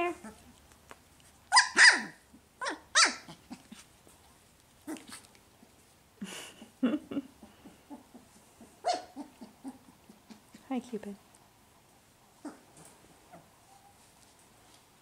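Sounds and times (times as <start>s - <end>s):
puppies grunting and whining: 0.0s - 0.6s, 1.5s - 3.9s, 4.8s - 10.6s, 12.3s - 14.1s
puppies yelping: 1.5s - 3.8s, 7.4s - 10.5s, 12.4s - 14.0s.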